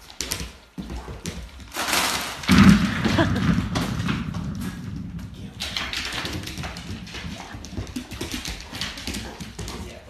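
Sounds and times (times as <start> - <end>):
dog claws clicking on wood floor: 0.0 - 2.5, 3.9 - 10.0.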